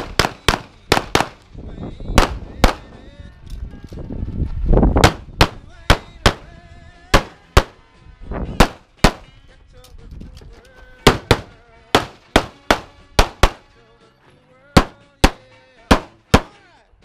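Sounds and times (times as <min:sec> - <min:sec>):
handgun shots: 0:00.0 - 0:01.4, 0:05.0 - 0:06.5, 0:07.2 - 0:07.8, 0:08.6 - 0:09.3, 0:11.0 - 0:13.7, 0:14.8 - 0:16.6.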